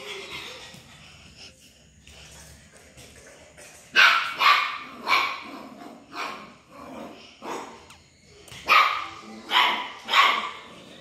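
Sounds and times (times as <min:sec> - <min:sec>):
small dog barking: 0:08.7 - 0:10.6.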